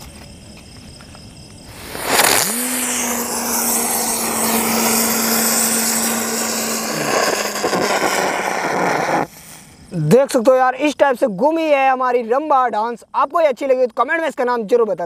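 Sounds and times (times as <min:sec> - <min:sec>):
low whine: 0:01.7 - 0:09.4
firework igniting with rush of sparks: 0:01.7 - 0:09.8
spinning firework hissing: 0:01.7 - 0:10.0.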